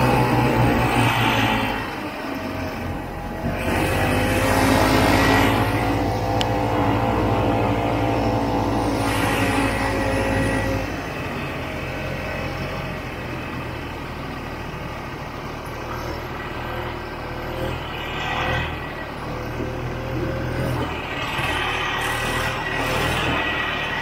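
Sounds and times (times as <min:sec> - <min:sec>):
snowmobile engine running: 0:00.0 - 0:12.5.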